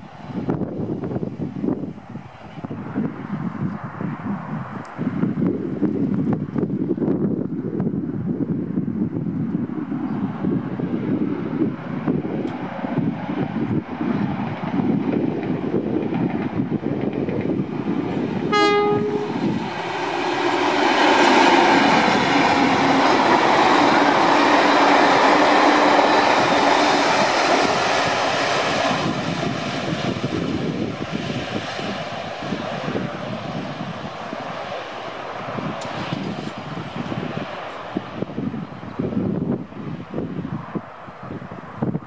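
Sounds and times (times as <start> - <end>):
diesel locomotive engine running: 10.3 - 42.0
train wheels on rails: 10.4 - 41.0
train horn blast: 18.5 - 19.6.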